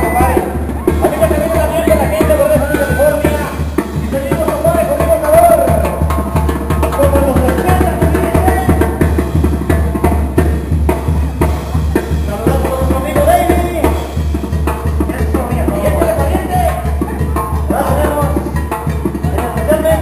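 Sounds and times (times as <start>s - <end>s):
brass band playing: 0.0s - 6.4s.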